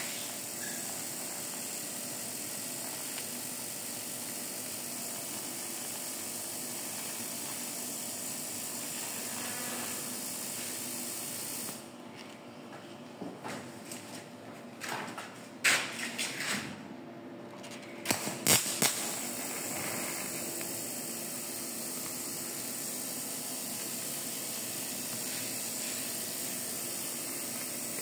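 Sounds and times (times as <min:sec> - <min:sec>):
welding arc hissing: 0:00.0 - 0:11.9, 0:18.0 - 0:28.0.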